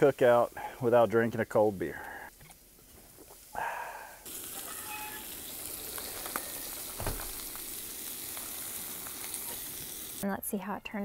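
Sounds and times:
food sizzling in a pan: 0:00.0 - 0:02.0, 0:03.0 - 0:10.3.

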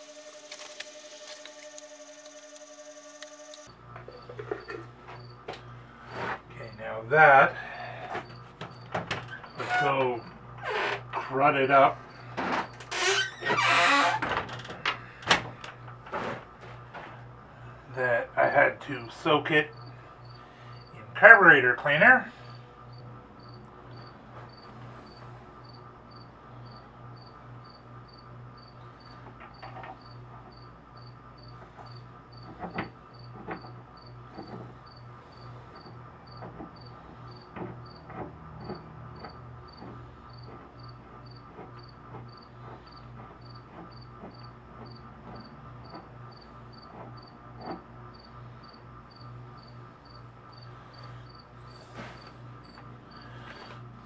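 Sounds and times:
cricket chirping: 0:00.0 - 0:05.4, 0:19.7 - 0:21.0, 0:22.4 - 0:38.0, 0:38.6 - 0:47.4, 0:48.1 - 0:53.6
low hum: 0:00.0 - 0:08.9.

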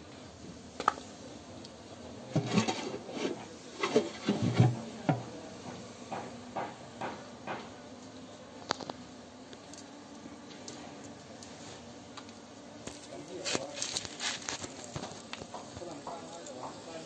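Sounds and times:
irregular knocks and scrapes: 0:02.3 - 0:07.8.

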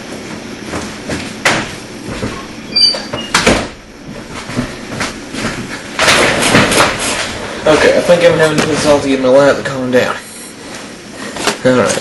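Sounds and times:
brief high squeak: 0:02.7 - 0:03.4.

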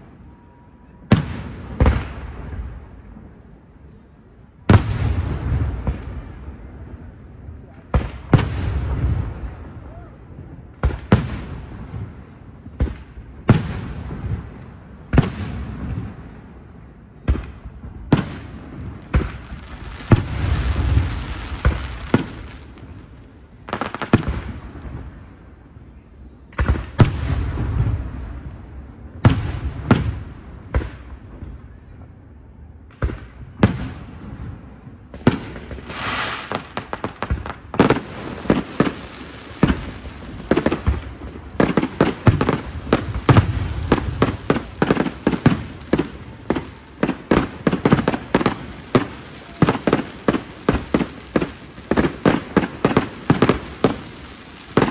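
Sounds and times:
fireworks bangs: 0:00.0 - 0:03.6, 0:04.6 - 0:25.7, 0:26.5 - 0:32.1, 0:32.8 - 0:54.9
fireworks crackles: 0:10.8 - 0:25.6, 0:33.0 - 0:54.9.

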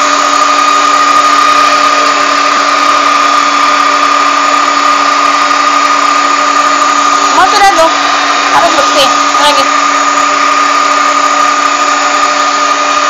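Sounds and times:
stand mixer whining: 0:00.0 - 0:13.0.

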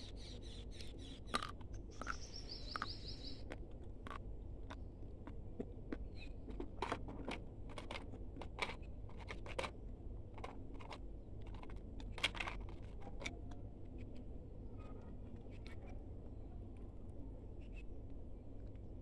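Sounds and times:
crunchy chewing close up: 0:00.8 - 0:06.8.

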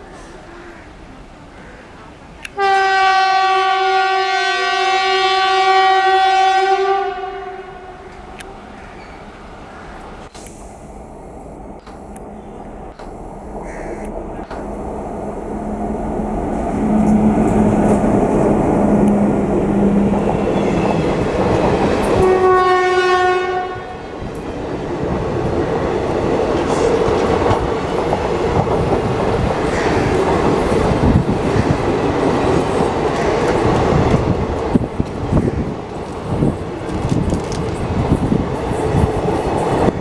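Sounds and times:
train horn blast: 0:02.6 - 0:08.2, 0:16.5 - 0:21.3, 0:22.2 - 0:24.1
locomotive rumble: 0:07.8 - 0:24.4.

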